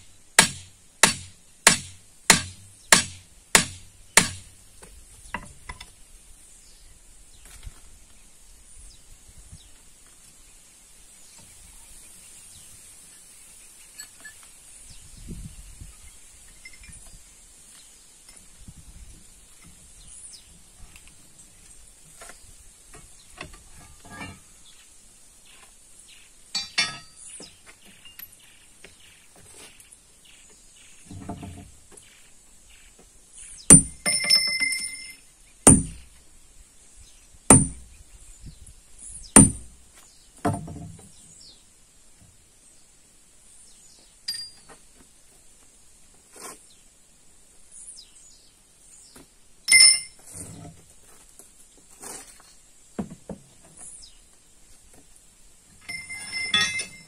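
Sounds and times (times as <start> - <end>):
hammer striking steel: 0.4 - 4.4, 26.6 - 27.2, 35.7 - 36.0.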